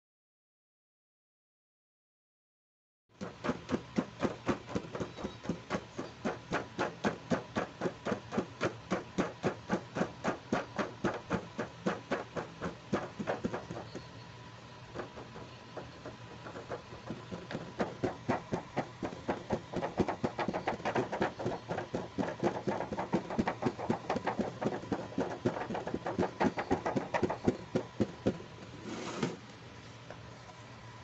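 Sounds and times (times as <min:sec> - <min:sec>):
plastic box sliding on table: 0:28.7 - 0:29.4.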